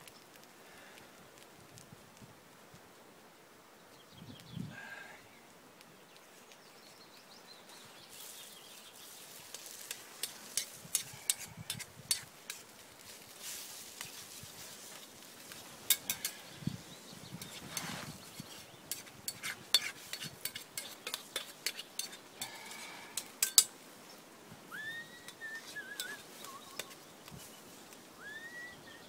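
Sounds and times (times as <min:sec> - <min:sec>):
utensil stirring eggs in frying pan: 0:09.0 - 0:16.6, 0:17.4 - 0:23.8, 0:25.3 - 0:27.4
bird calling with trill: 0:24.7 - 0:27.2, 0:28.2 - 0:29.0.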